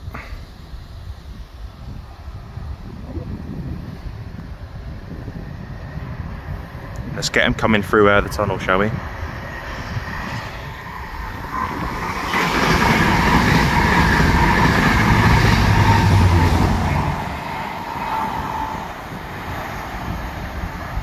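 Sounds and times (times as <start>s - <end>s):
train wheels rushing on rail: 3.5s - 21.0s
deep diesel engine hum: 12.9s - 19.6s.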